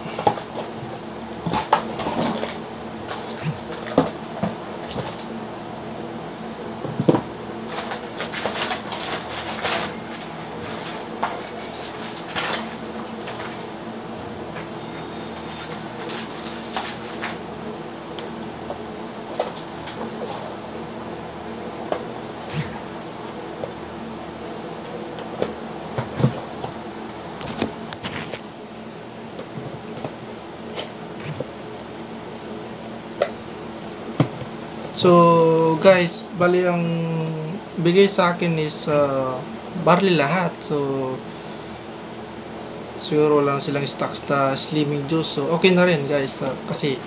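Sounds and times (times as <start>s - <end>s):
steady background hiss: 0.0s - 47.0s
packaging rustling: 7.7s - 13.7s.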